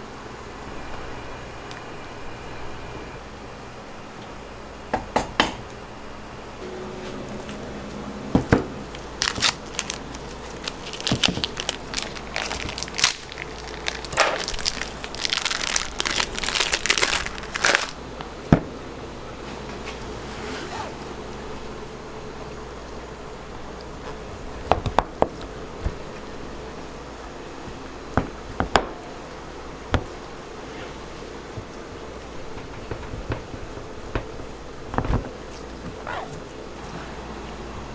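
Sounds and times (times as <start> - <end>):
crinkling and crackling: 8.8 - 18.0.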